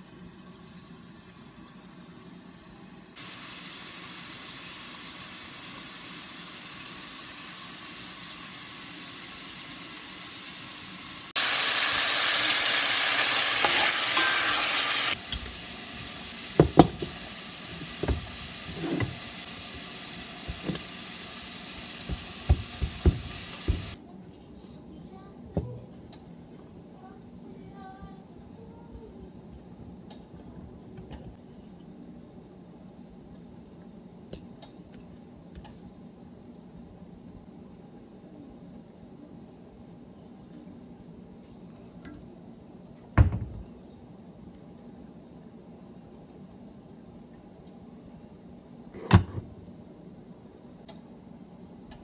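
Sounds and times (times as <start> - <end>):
chicken sizzling in a pan: 3.2 - 24.0.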